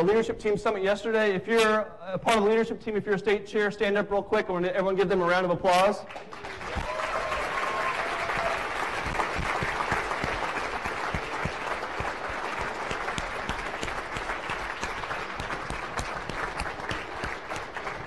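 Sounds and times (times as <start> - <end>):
audience applauding: 6.1 - 18.0.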